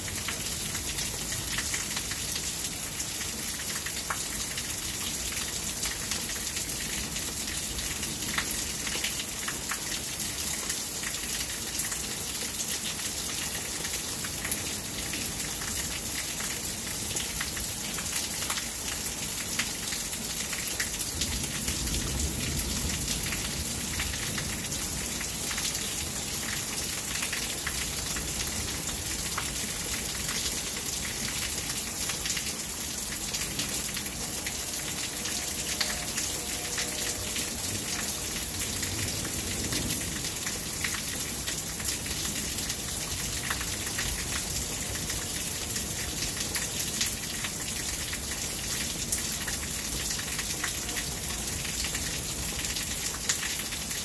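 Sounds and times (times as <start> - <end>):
heavy rain falling: 0.0 - 54.0.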